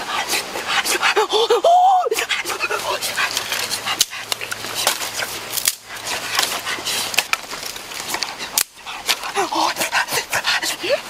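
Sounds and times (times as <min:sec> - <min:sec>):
dry leaves rustling: 0:02.2 - 0:10.2
sticks clattering: 0:03.3 - 0:09.2.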